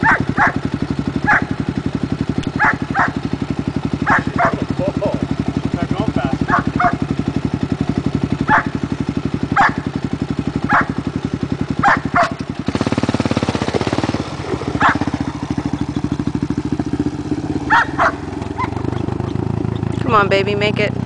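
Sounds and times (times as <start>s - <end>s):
dirt bike engine running: 0.0s - 21.0s.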